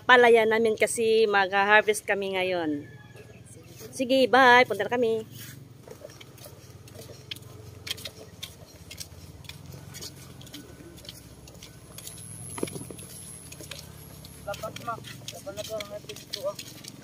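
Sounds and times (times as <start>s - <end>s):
footsteps in flip-flops on concrete: 0.1s - 17.0s.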